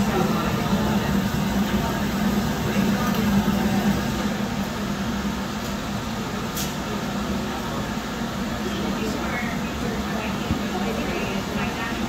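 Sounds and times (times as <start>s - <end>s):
furnace and blower roaring: 0.0s - 12.0s.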